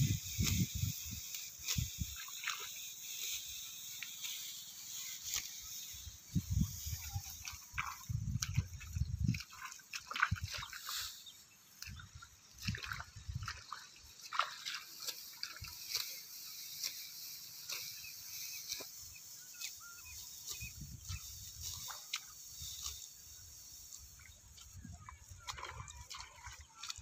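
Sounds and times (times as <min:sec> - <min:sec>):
dry rice stalks rustling: 0:00.0 - 0:27.0
wet squelches in mud: 0:07.2 - 0:18.0, 0:20.5 - 0:27.0.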